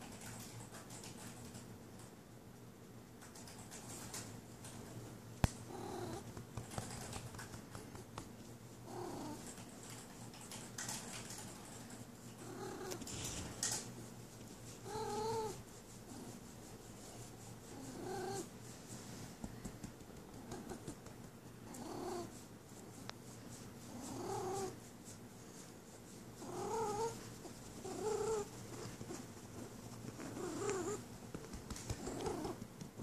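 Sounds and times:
cat purring: 0:05.6 - 0:08.2, 0:08.8 - 0:09.8, 0:10.4 - 0:13.9, 0:14.8 - 0:16.4, 0:17.6 - 0:18.5, 0:19.8 - 0:22.4, 0:23.8 - 0:24.8, 0:26.4 - 0:33.0.

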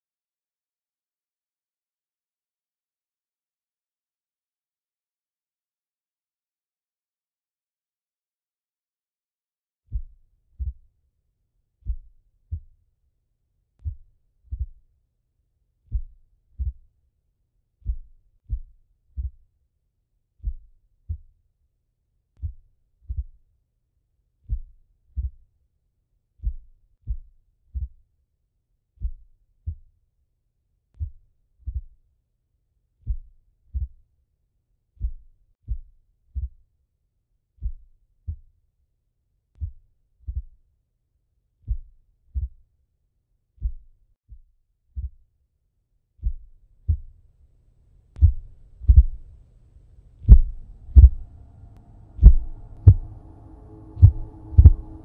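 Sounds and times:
heartbeat thumps: 0:13.8 - 0:14.8, 0:15.9 - 0:16.8, 0:17.8 - 0:19.4, 0:33.1 - 0:34.0, 0:35.0 - 0:36.5, 0:46.2 - 0:47.2, 0:48.2 - 0:49.4, 0:50.2 - 0:55.0
low hum: 0:47.6 - 0:55.0.

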